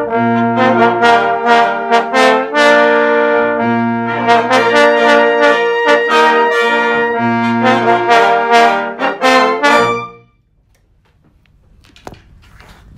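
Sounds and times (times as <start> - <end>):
brass ensemble playing chords: 0.0 - 10.4.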